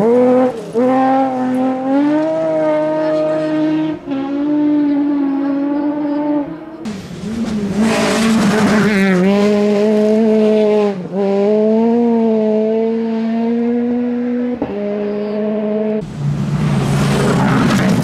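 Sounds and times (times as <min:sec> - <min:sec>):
lower-pitched rally car engine: 0:00.0 - 0:18.0
rally car engine at high revs: 0:00.0 - 0:18.0
loud rushing noise: 0:16.0 - 0:18.0.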